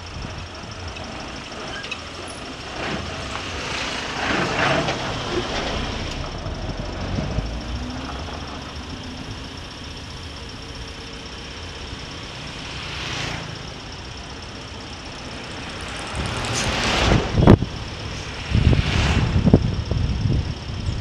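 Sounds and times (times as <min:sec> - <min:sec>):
motorcycle engine and road rumble: 0:00.0 - 0:21.0
wind noise on microphone: 0:16.1 - 0:21.0.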